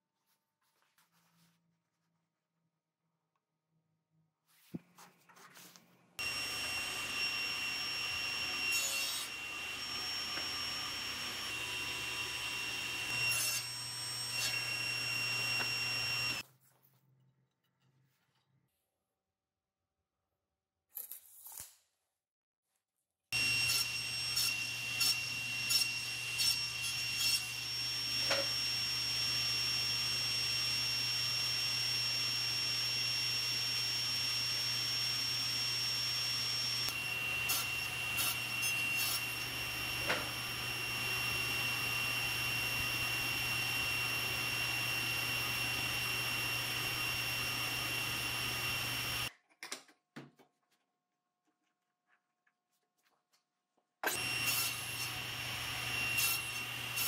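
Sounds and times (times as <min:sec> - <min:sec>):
table saw whining: 0:06.2 - 0:16.4, 0:23.4 - 0:49.3, 0:54.0 - 0:57.0.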